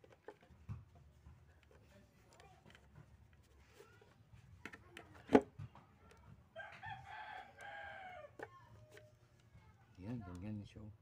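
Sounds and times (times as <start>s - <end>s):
rooster crowing: 6.6s - 8.3s.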